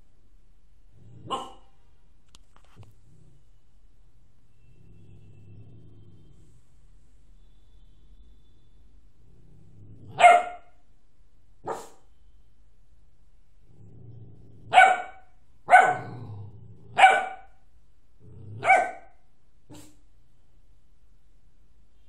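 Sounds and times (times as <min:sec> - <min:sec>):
dog barking: 0:01.2 - 0:01.8, 0:10.1 - 0:10.8, 0:11.6 - 0:12.1, 0:14.7 - 0:16.2, 0:16.9 - 0:17.6, 0:18.6 - 0:20.0
dog growling: 0:03.0 - 0:03.5, 0:04.8 - 0:06.4, 0:09.2 - 0:10.3, 0:13.6 - 0:14.8, 0:15.9 - 0:17.1, 0:18.2 - 0:18.7.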